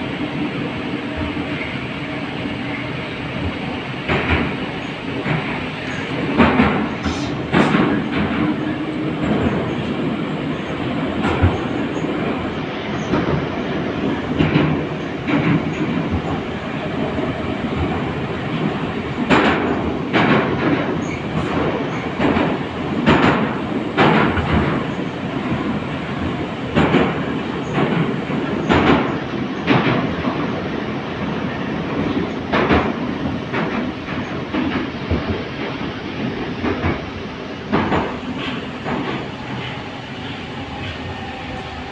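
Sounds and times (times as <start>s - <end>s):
train rolling rumble: 0.0s - 41.9s
wheels clacking over rail joints: 3.4s - 30.6s.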